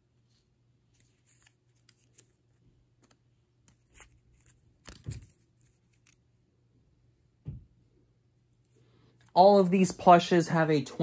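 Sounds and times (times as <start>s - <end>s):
soft thump: 7.4s - 7.7s.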